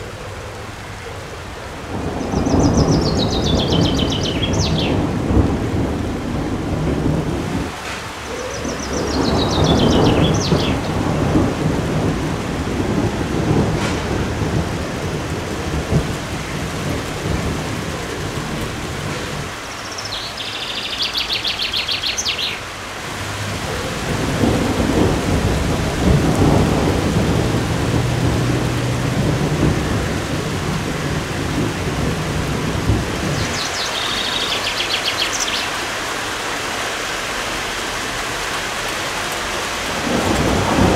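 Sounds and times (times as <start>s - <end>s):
steady rain: 0.0s - 40.9s
rolling thunder: 1.7s - 19.7s, 23.1s - 35.6s, 39.8s - 40.9s
bird trill: 19.8s - 22.6s, 33.4s - 35.8s.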